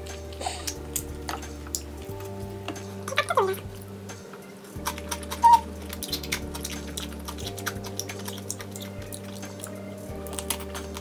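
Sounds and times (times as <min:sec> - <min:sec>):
soft background music: 0:00.0 - 0:11.0
wet chewing smacks: 0:04.8 - 0:11.0.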